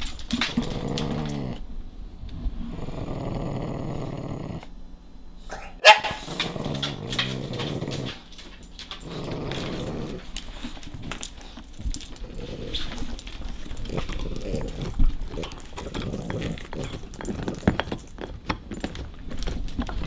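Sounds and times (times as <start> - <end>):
dog growling: 0.0 - 1.7, 2.3 - 4.8, 5.5 - 18.2
dog barking sharply: 5.5 - 6.3.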